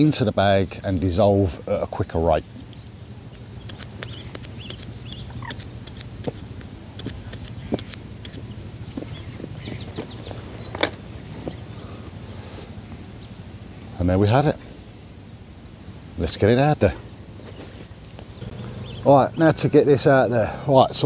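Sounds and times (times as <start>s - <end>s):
bird chirps: 0.0s - 6.0s, 7.0s - 20.3s
needle clicks and taps: 2.7s - 8.4s.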